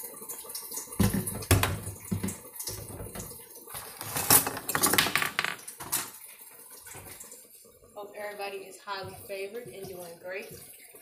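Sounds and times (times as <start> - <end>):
running tap: 0.0 - 11.0
dishes and cutlery clinking: 1.0 - 6.2.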